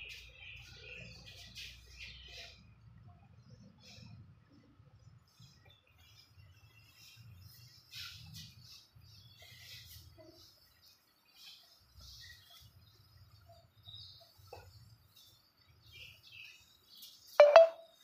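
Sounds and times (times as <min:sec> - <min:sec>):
faint high chirps: 0:05.4 - 0:18.0.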